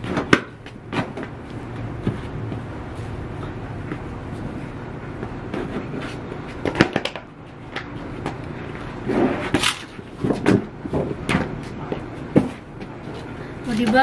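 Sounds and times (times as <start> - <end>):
doormat dragged with scraping rustle: 9.0 - 9.5.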